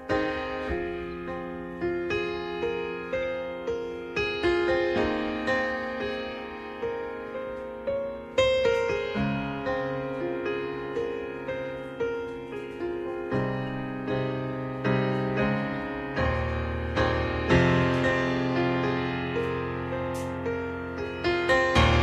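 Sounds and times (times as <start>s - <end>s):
slow solo piano: 0.0s - 22.0s.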